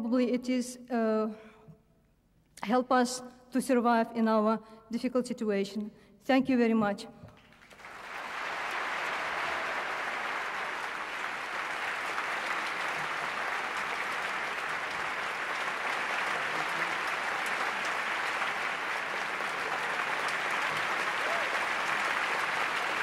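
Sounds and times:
audience applauding: 7.4 - 23.0.

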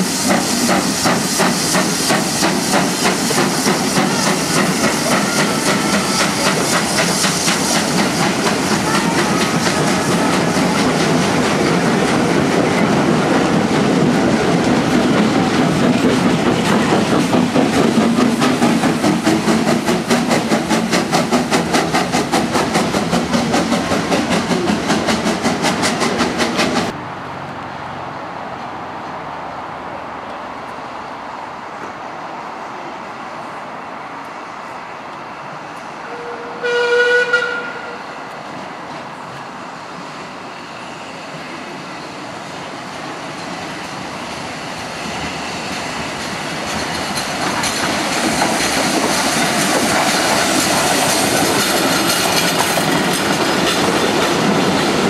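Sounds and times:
train wheels clickety-clack: 0.0 - 27.0, 42.5 - 55.0
train whistle: 8.4 - 10.8, 36.0 - 38.3.

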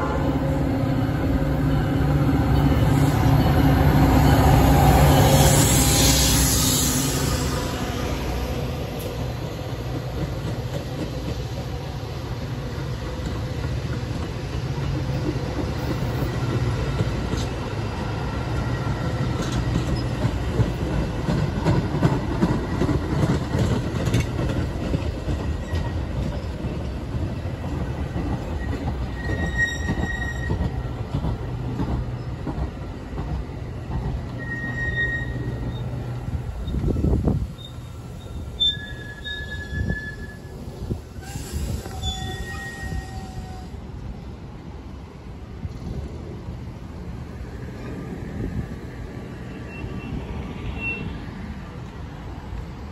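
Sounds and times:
train wheels rumbling on rail: 0.0 - 52.9
thin wheel squeals: 29.1 - 30.6, 34.4 - 36.0, 37.6 - 40.5, 41.3 - 43.6.

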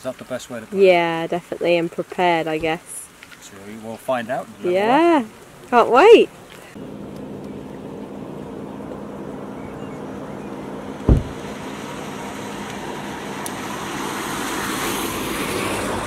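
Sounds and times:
motor vehicle on road: 2.8 - 16.0
low thump: 11.0 - 11.4.

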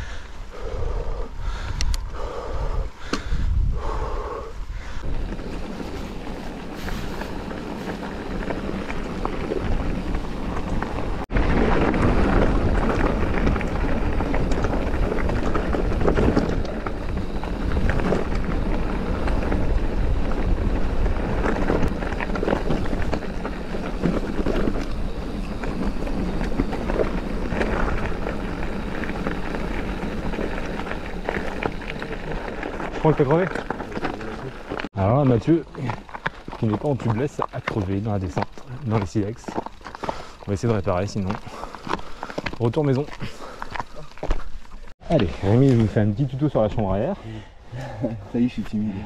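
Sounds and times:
wind buffeting microphone: 0.0 - 35.0
bike rattling: 0.0 - 49.0
bike tyres rolling over stones: 0.0 - 49.0.

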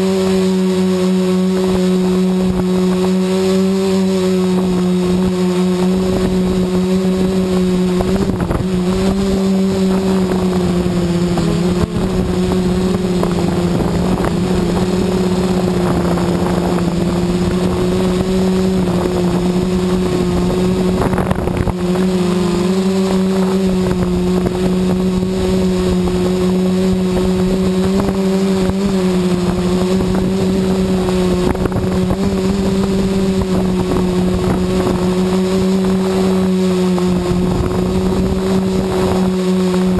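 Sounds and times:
drone propellers humming: 0.0 - 39.9
wind rumbling on microphone: 0.0 - 39.9.

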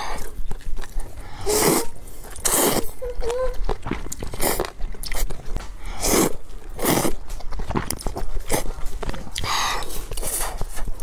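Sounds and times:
wet mouth clicks and chewing: 0.0 - 11.0
person slurping noodles: 1.4 - 3.0.

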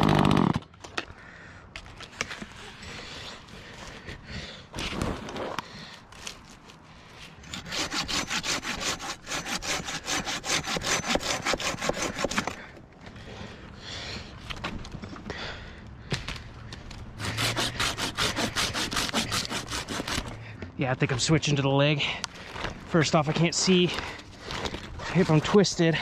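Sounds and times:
handsaw cutting tree limb: 7.4 - 12.7, 17.2 - 20.4, 23.0 - 25.6.

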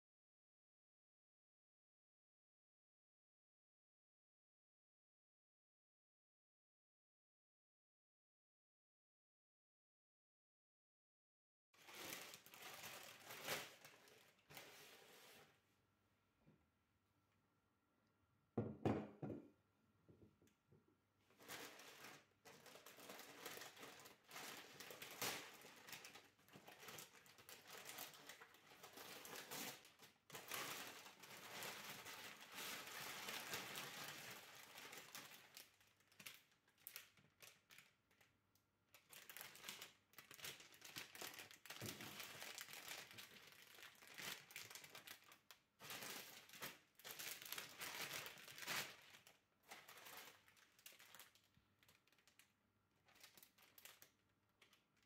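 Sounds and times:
paper and cellophane crinkling: 11.8 - 15.5, 21.3 - 38.3, 38.9 - 55.0.

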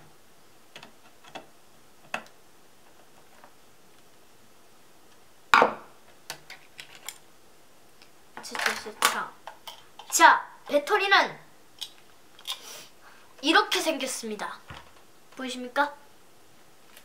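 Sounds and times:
plastic parts clicking and tapping: 8.4 - 10.2.

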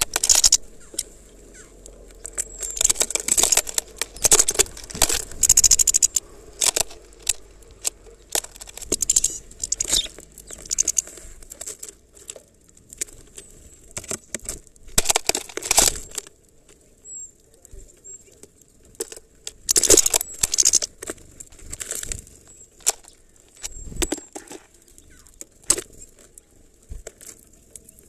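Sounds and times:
bird wings fluttering: 0.0 - 11.2
beak tapping on plastic: 1.8 - 11.0.

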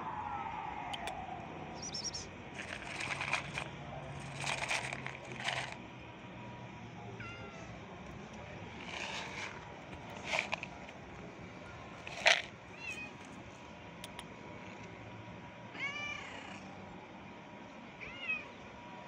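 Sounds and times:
scratchy rustling: 2.6 - 5.8, 8.8 - 11.0, 12.0 - 12.5
cats meowing: 12.7 - 13.3, 15.7 - 16.7.

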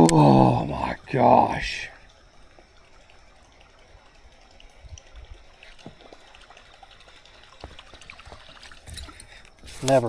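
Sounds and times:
water trickling and splashing: 0.0 - 10.0
small ticks: 2.0 - 10.0.

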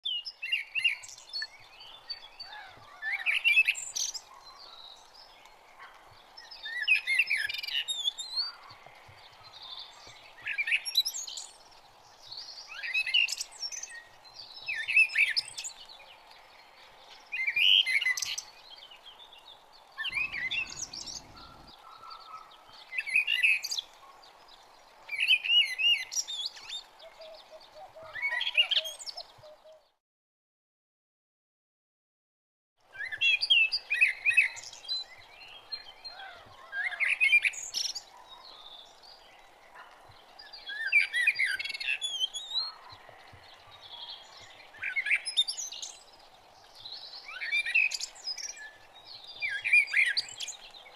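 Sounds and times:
songbird warbling: 20.0 - 22.2.

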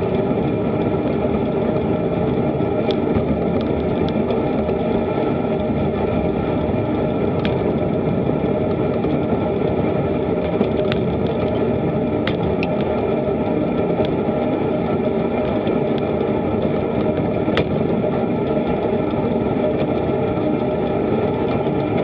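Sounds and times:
road rumble: 0.0 - 22.0
wind noise: 0.0 - 22.0.

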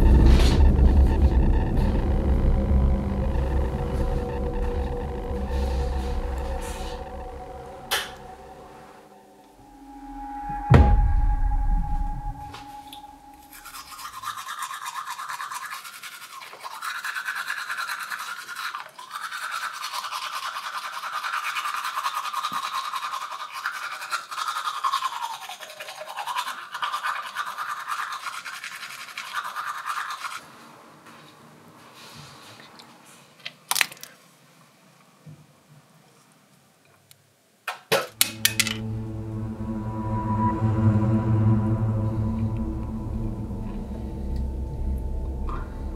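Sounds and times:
toothbrush scrubbing teeth: 13.5 - 30.4.

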